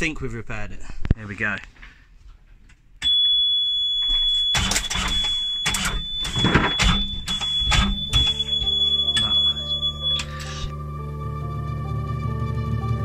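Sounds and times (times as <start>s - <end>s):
alarm buzzer high tone: 3.0s - 10.7s.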